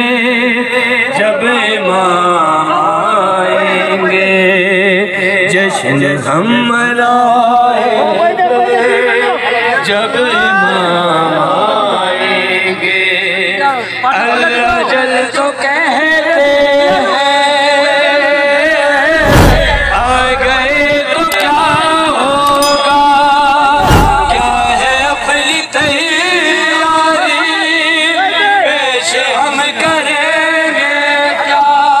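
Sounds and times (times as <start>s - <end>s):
heavy thumps: 19.2s - 20.9s, 22.8s - 25.5s.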